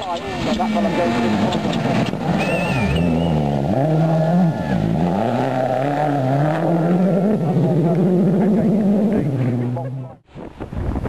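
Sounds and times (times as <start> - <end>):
rally car engine revving: 0.0 - 10.2
high whistle: 2.4 - 3.5.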